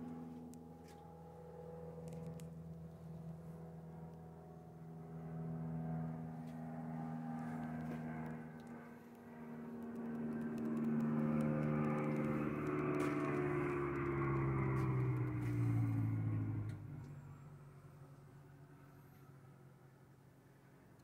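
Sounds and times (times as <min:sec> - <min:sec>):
truck engine running: 0:09.8 - 0:17.6.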